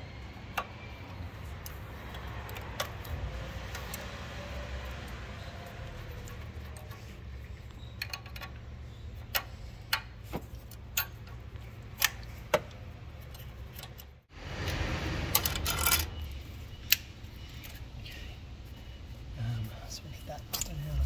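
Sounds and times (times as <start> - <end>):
spanner clicking on metal nuts: 0.5 - 14.2.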